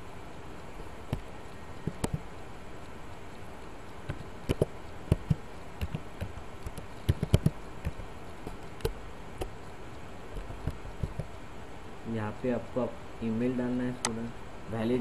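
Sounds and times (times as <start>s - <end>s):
low steady hiss: 0.0s - 15.0s
keyboard keystroke clicks: 4.1s - 8.0s.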